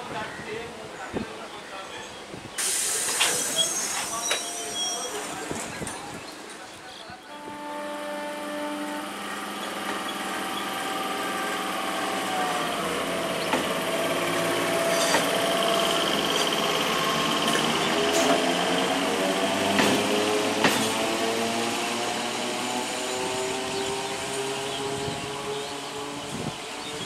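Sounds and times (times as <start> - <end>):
train motors whining: 8.2 - 26.6
wheel clacks over rail joints: 19.6 - 21.1.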